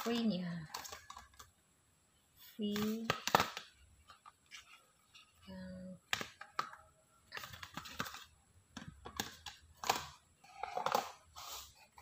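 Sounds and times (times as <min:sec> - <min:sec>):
packaging clicks and taps: 0:02.7 - 0:05.3, 0:06.0 - 0:11.2.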